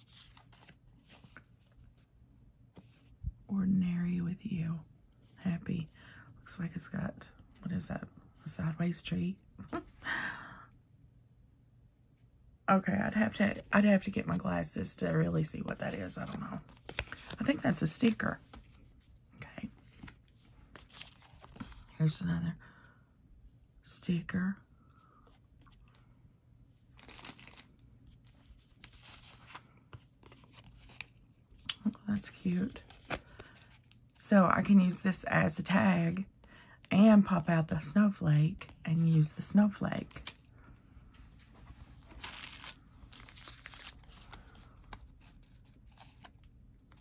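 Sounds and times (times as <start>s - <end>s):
paper rustling and crinkling: 0.0s - 2.1s, 15.5s - 22.0s, 27.0s - 34.1s, 41.1s - 47.0s.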